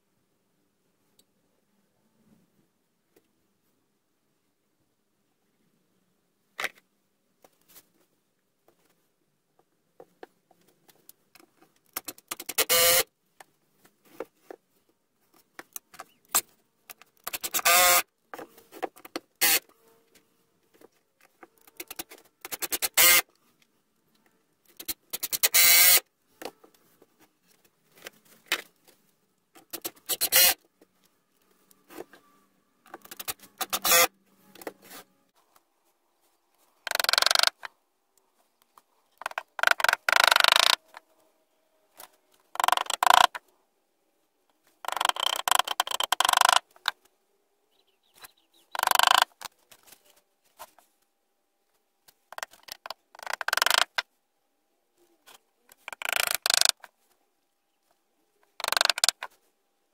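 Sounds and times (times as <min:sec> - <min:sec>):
impact driver driving screws: 0:12.0 - 0:13.0, 0:17.2 - 0:18.0, 0:19.4 - 0:19.6, 0:21.8 - 0:23.2, 0:24.8 - 0:26.0, 0:29.6 - 0:30.6, 0:32.9 - 0:34.1, 0:36.9 - 0:37.6.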